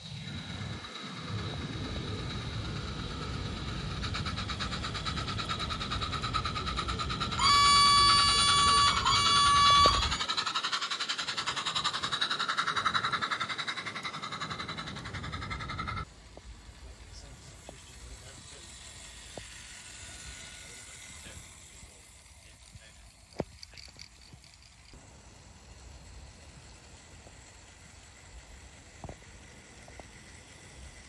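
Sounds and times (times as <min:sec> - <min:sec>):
model train wheels clattering: 0:00.0 - 0:31.0
train whistle toots: 0:06.4 - 0:10.5.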